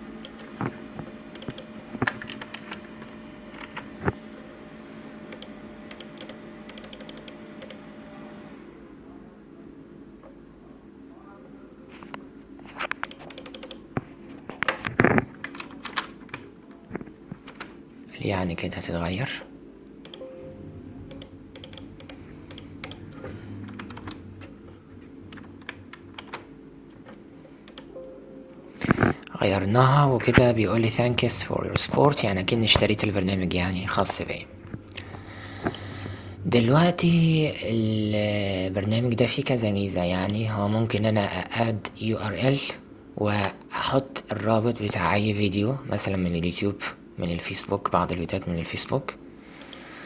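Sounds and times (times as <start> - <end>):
mouse and keyboard clicks: 1.4 - 2.6, 5.3 - 7.8, 12.8 - 13.8, 21.1 - 23.1
low hum: 16.4 - 43.3.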